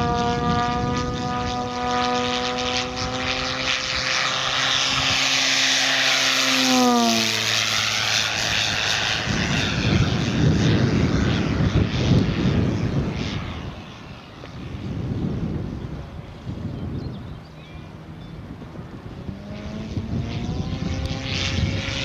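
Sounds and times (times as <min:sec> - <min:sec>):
model airplane propeller buzzing: 0:00.0 - 0:22.0.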